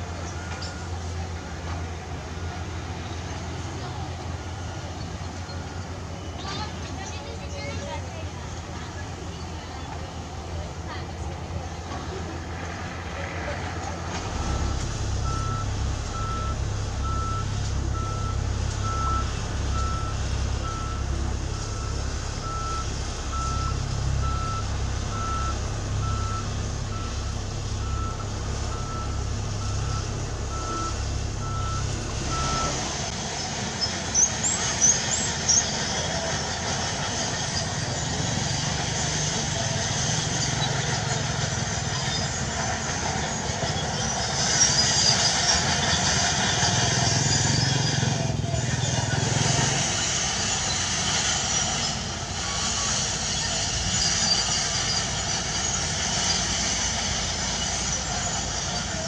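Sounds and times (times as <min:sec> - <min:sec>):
heavy machinery rumble: 0:00.0 - 0:59.0
compactor engine throbbing: 0:14.0 - 0:44.3
reverse alarm beeping: 0:14.2 - 0:33.1.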